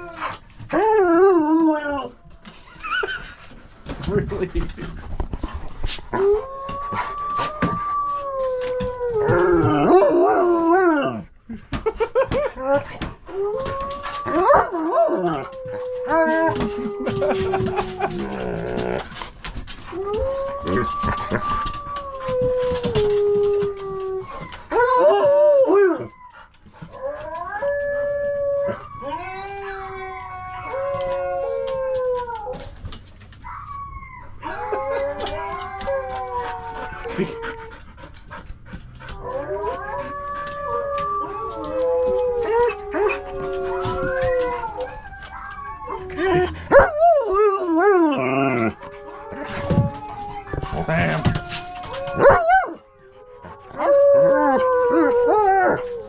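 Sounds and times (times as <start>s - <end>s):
dogs howling: 6.1s - 11.2s, 12.5s - 19.1s, 19.9s - 32.7s, 33.4s - 56.0s
dog howling: 27.0s - 32.6s, 39.0s - 56.0s.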